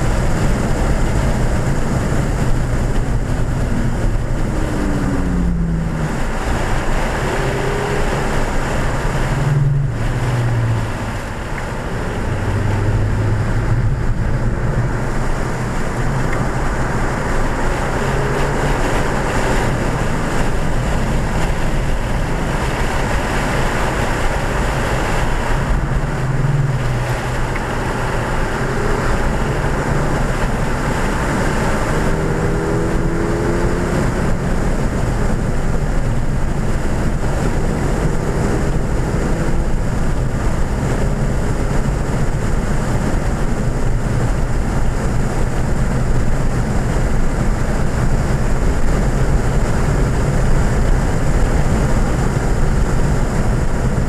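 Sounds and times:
car engine running hard: 0.0s - 54.0s
tyre and wind noise: 0.0s - 54.0s.

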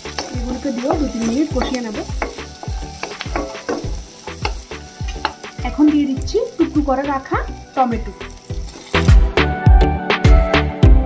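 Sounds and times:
wooden spatula scraping a pan: 0.0s - 6.2s, 7.8s - 9.2s
food sizzling in butter: 0.0s - 9.7s.

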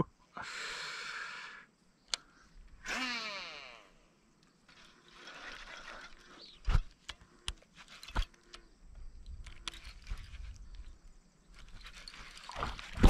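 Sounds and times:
light clicks: 2.0s - 2.3s.

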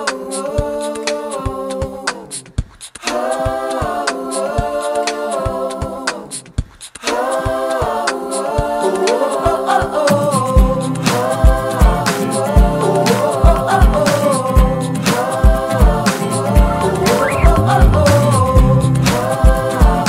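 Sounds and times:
a cappella voices singing chords: 0.0s - 20.0s
bass line: 16.6s - 19.4s
steady clicking beat: 17.1s - 19.4s.

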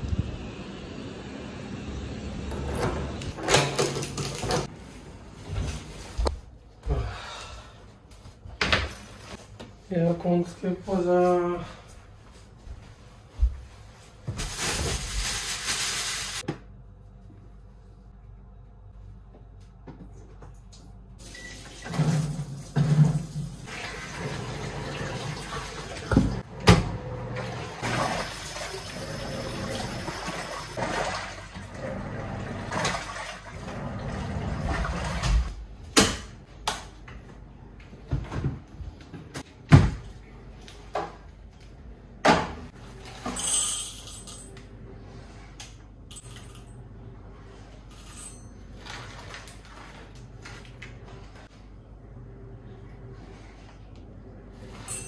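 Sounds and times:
washing machine filling with water: 21.2s - 35.5s.

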